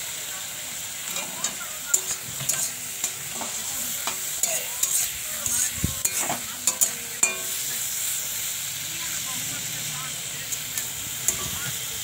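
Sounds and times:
food sizzling in oil: 0:00.0 - 0:12.0
metal spatula scraping pan: 0:01.1 - 0:07.7.

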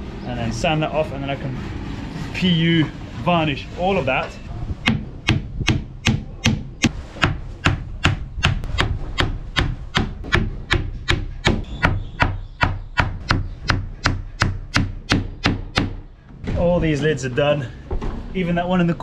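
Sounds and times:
hammer nailing into wood: 0:04.8 - 0:16.0.

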